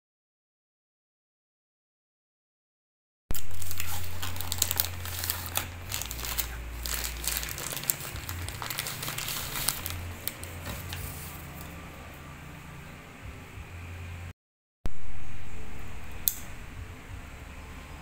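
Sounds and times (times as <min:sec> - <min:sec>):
crinkling with sharp clicks: 0:03.3 - 0:11.7
low steady hum: 0:03.3 - 0:14.3, 0:14.9 - 0:18.0.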